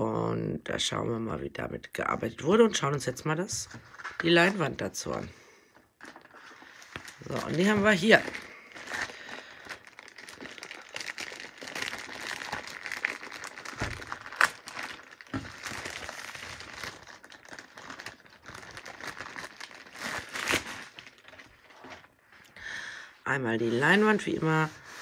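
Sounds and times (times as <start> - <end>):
plastic sleeve crinkling: 3.6 - 22.6.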